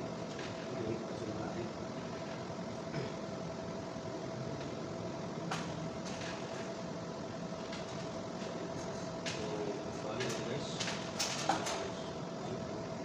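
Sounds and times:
steady background hum: 0:00.0 - 0:13.0
electrical wire clicking and rustling: 0:09.2 - 0:11.9.

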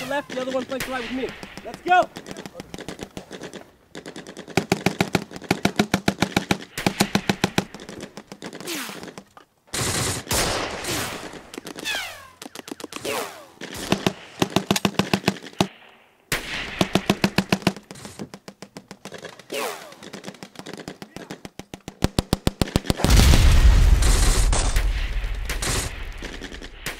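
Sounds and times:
machine-gun bursts: 0:25.5 - 0:26.9.

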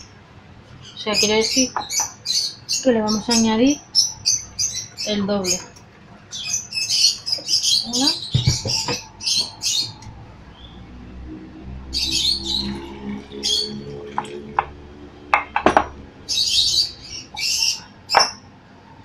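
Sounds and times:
bird chirping and squawking: 0:00.8 - 0:10.9, 0:11.8 - 0:14.5, 0:16.2 - 0:18.4
water pouring into glass jar: 0:12.5 - 0:15.1.

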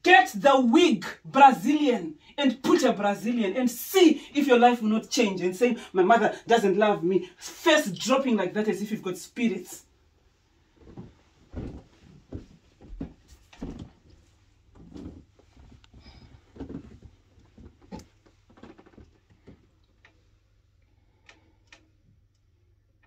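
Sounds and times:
quiet footsteps: 0:10.7 - 0:19.8.

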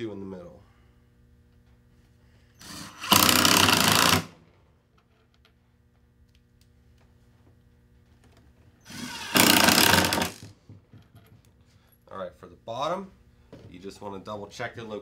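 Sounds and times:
impact driver hammering rattle: 0:02.6 - 0:04.4, 0:08.9 - 0:10.5.

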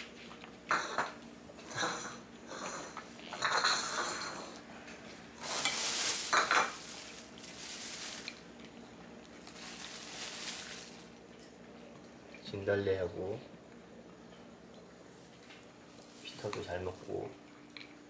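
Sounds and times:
bowl clinking: 0:05.4 - 0:08.4
cat crunching and chewing food: 0:05.4 - 0:11.7.

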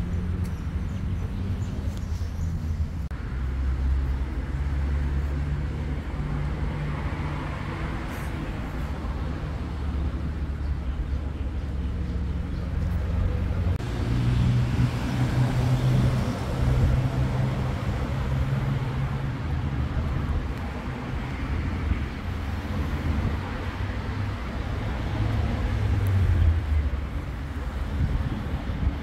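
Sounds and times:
vehicle engine passing by: 0:11.9 - 0:19.8.

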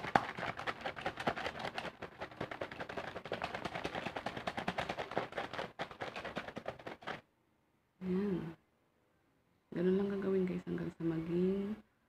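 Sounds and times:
liquid sloshing in plastic bottle: 0:00.0 - 0:07.2
plastic bottle knocking: 0:00.0 - 0:07.2.

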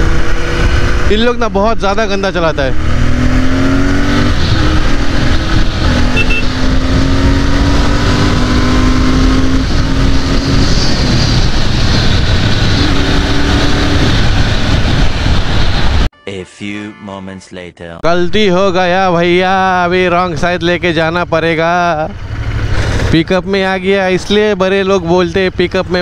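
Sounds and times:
motorcycle engine running: 0:00.0 - 0:16.0, 0:19.7 - 0:26.0
wind rushing over microphone: 0:00.0 - 0:16.1.

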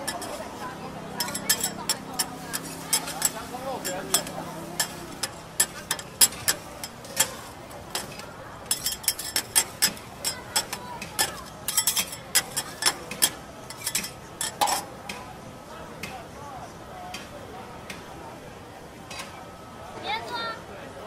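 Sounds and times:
metal spatulas clacking on griddle: 0:00.0 - 0:00.4, 0:01.2 - 0:15.2.

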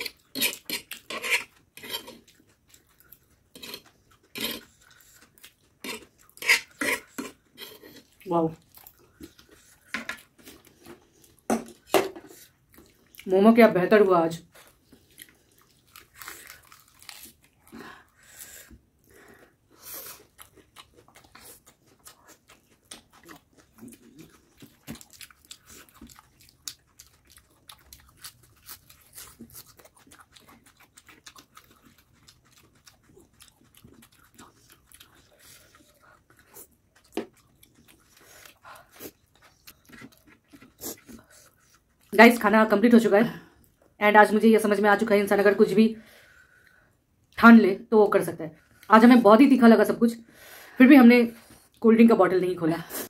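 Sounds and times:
chewing crunchy food: 0:00.0 - 0:13.4, 0:14.5 - 0:42.5.

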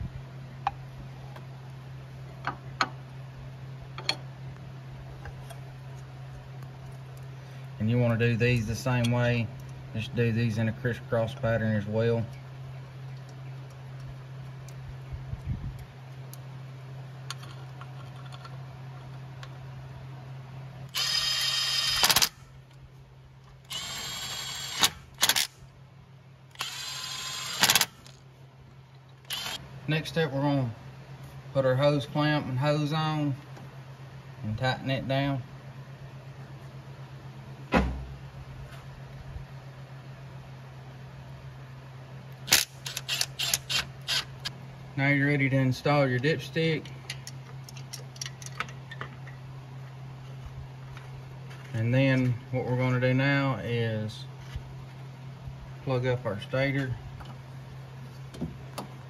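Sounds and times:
low hum: 0:00.0 - 0:59.0
power driver spinning bolts: 0:20.9 - 0:22.4, 0:23.7 - 0:25.6, 0:26.5 - 0:28.2, 0:29.2 - 0:29.6, 0:42.5 - 0:44.5.

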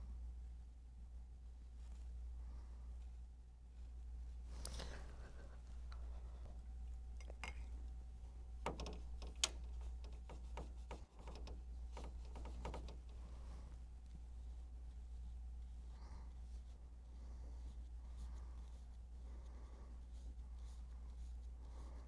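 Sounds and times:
low steady hum: 0:00.0 - 0:22.0
paintbrush tapping on plastic palette: 0:08.6 - 0:13.5.

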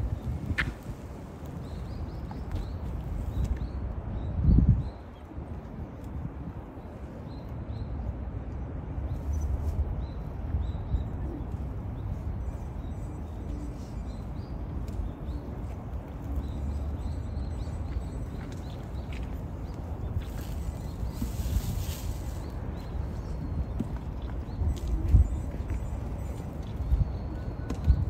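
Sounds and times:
wind rumbling on microphone: 0:00.0 - 0:28.0
small birds chirping: 0:09.1 - 0:28.0.

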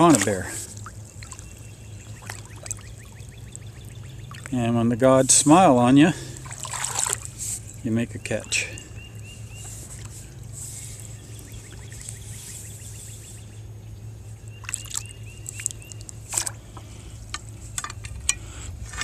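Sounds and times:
water trickling and dripping: 0:00.0 - 0:05.4, 0:06.3 - 0:07.7, 0:14.5 - 0:16.5
low steady hum: 0:00.0 - 0:19.0.

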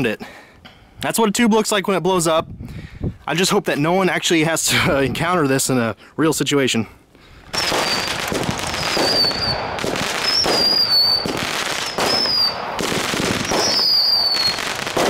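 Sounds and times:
fireworks bursts and crackles: 0:07.4 - 0:15.0
falling firework whistles: 0:07.5 - 0:15.0.

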